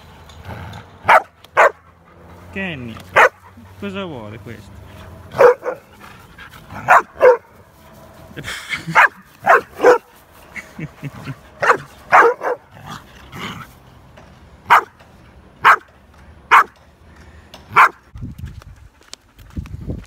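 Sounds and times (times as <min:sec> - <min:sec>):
dog barking: 0:01.1 - 0:01.8, 0:03.2 - 0:03.4, 0:05.4 - 0:05.9, 0:06.8 - 0:07.5, 0:09.0 - 0:10.1, 0:11.6 - 0:12.7, 0:14.7 - 0:14.9, 0:15.6 - 0:15.9, 0:16.5 - 0:16.7, 0:17.8 - 0:18.0.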